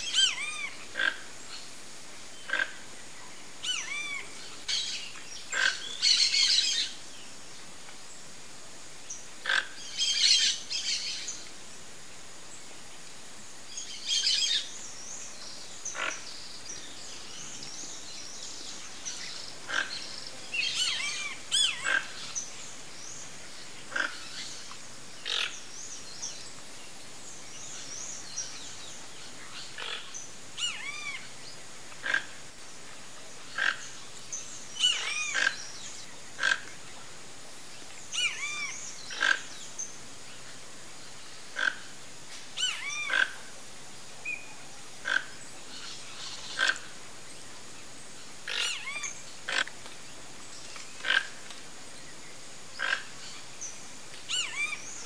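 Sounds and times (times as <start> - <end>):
toucans calling: 0.0 - 1.6, 2.4 - 2.9, 3.5 - 7.0, 9.4 - 11.4, 15.8 - 25.7, 29.5 - 32.4, 33.5 - 36.8, 38.1 - 39.8, 42.6 - 43.5, 44.2 - 47.0, 48.4 - 49.9, 52.8 - 55.0.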